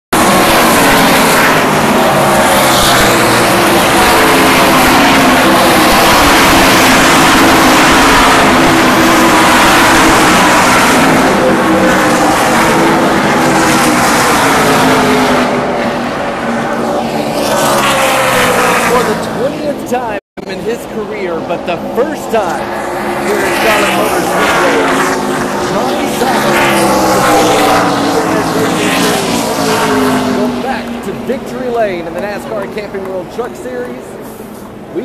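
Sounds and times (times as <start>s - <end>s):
race truck engines passing: 0.2s - 35.0s.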